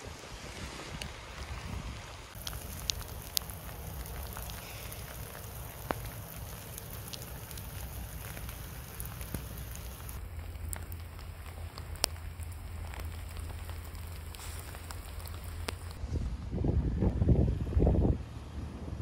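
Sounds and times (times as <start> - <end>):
rain falling: 0.0 - 16.0
drops ticking: 2.4 - 16.0.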